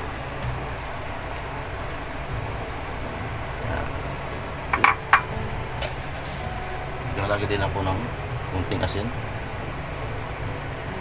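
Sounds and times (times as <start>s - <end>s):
pot simmering with low rumble: 0.0s - 11.0s
sharp clinks: 4.8s - 5.3s.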